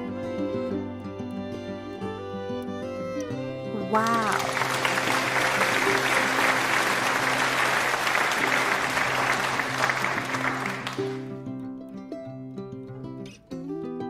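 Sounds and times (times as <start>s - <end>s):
crowd applause: 3.8s - 11.4s.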